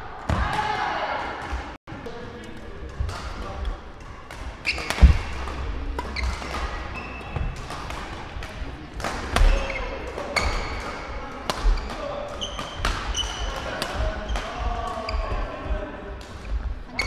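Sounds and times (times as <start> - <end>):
thudding footfalls: 5.0 - 5.5.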